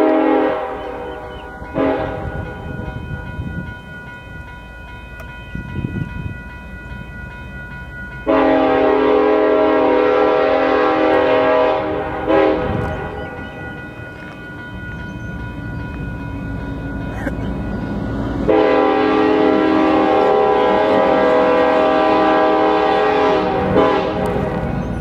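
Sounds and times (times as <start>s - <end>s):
locomotive air horn blast: 0.0s - 2.5s, 8.3s - 13.2s, 18.4s - 24.6s
diesel engines rumbling: 8.2s - 25.0s.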